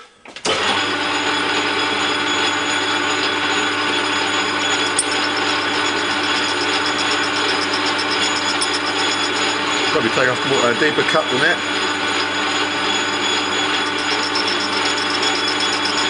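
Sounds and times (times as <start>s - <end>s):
metal lathe humming and whining: 0.5s - 16.0s
fast even ticking of cutting tool: 4.4s - 16.0s.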